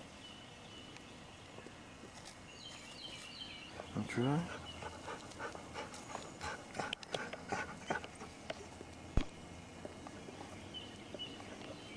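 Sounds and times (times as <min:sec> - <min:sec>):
dog sniffing: 0:03.8 - 0:08.4.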